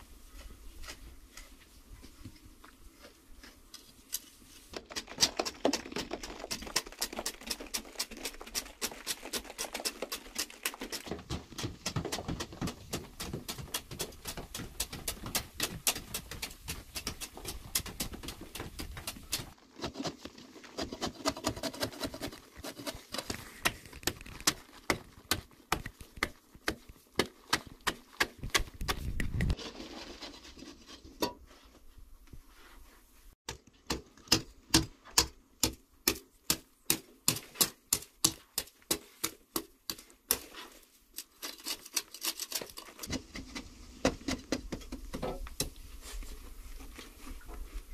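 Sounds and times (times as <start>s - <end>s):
soil crumbling: 3.1s - 30.5s
hoes striking clay wall: 4.8s - 20.2s, 20.8s - 29.6s, 33.5s - 40.5s.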